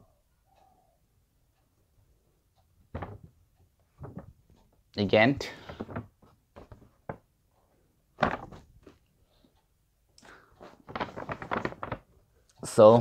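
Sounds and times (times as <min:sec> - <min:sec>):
paper bag rustling and crinkling: 0:05.4 - 0:07.2, 0:08.2 - 0:09.0, 0:10.6 - 0:12.1.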